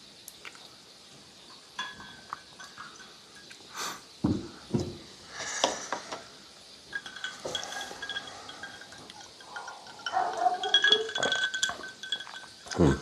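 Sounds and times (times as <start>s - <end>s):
metal strainer clinking on glass: 1.8s - 3.5s, 6.9s - 13.0s.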